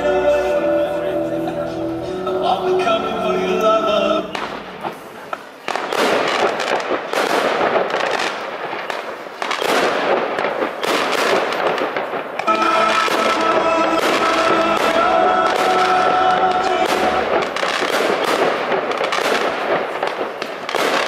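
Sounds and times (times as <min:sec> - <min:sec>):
music: 0:00.0 - 0:05.0, 0:12.5 - 0:17.6
fireworks crackling: 0:00.0 - 0:21.0
fireworks launches: 0:04.3 - 0:21.0.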